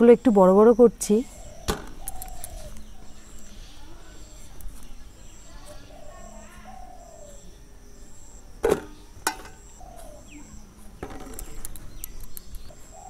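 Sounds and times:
high insect trill: 0:00.0 - 0:13.0
dove cooing: 0:01.2 - 0:04.4, 0:05.4 - 0:07.5, 0:09.0 - 0:10.6, 0:12.7 - 0:13.0
sharp knocks: 0:01.7 - 0:02.0.

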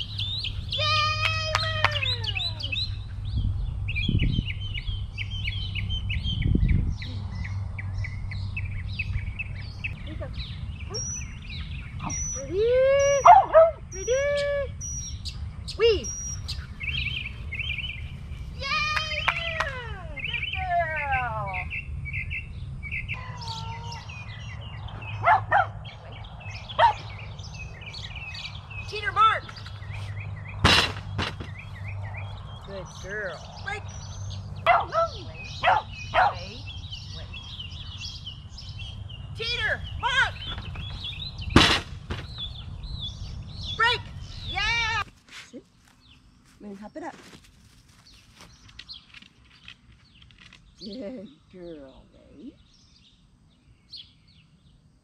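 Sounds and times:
songbirds chirping: 0:00.0 - 0:55.0
small dog barking: 0:13.2 - 0:13.8, 0:25.2 - 0:25.8, 0:26.8 - 0:27.1, 0:34.6 - 0:36.5.

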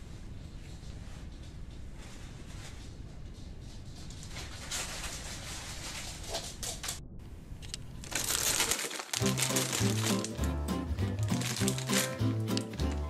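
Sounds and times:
plastic bag crinkling: 0:07.7 - 0:13.0
background music: 0:09.1 - 0:13.0.

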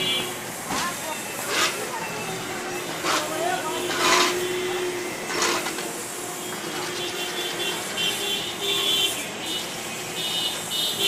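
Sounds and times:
loader engine running: 0:00.0 - 0:06.2
street traffic: 0:00.0 - 0:11.0.

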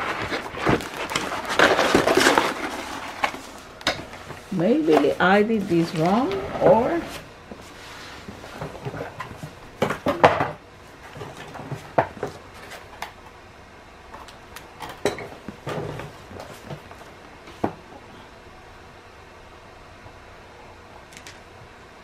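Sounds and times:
plastic packaging clicks and rustles: 0:00.0 - 0:04.2.

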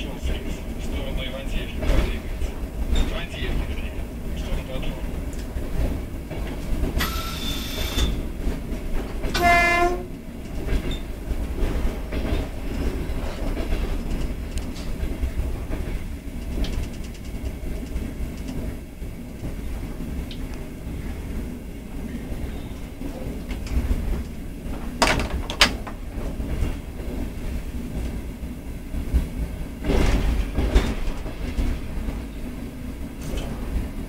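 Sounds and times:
train running gear rumble: 0:00.0 - 0:34.0
wheels clicking over rails: 0:01.5 - 0:21.1, 0:23.1 - 0:28.2
train horn blast: 0:09.4 - 0:10.2.

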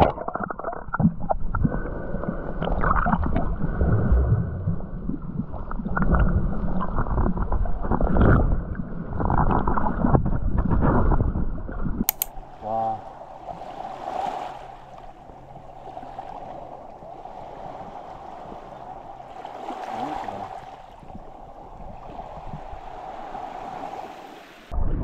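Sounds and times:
small waves lapping on rocks: 0:12.3 - 0:24.7.

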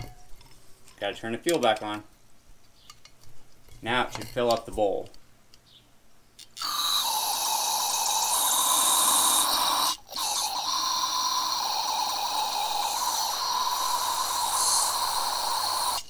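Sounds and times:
fuel running hiss: 0:06.6 - 0:16.0.

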